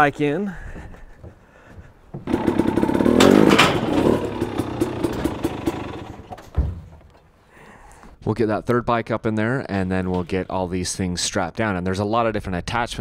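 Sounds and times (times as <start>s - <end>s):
dirt bike engine running: 2.2s - 6.5s.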